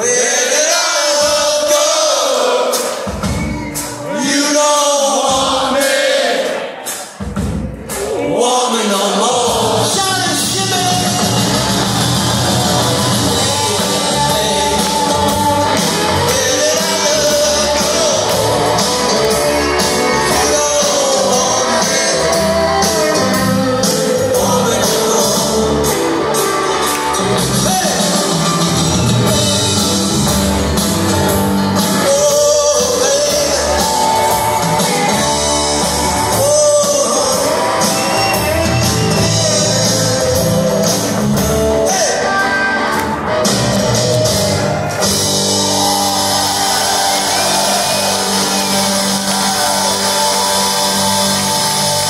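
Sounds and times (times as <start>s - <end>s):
man singing: 0.0s - 2.8s, 3.9s - 6.3s, 8.2s - 26.4s, 27.4s - 28.6s, 31.8s - 43.0s
rock band playing live: 0.0s - 6.1s, 8.9s - 52.0s.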